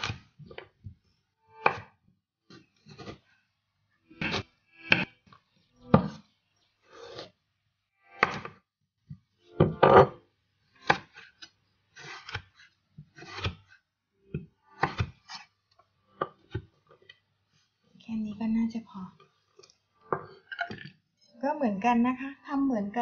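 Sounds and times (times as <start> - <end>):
knife cutting on a wooden board: 12.0 - 13.7.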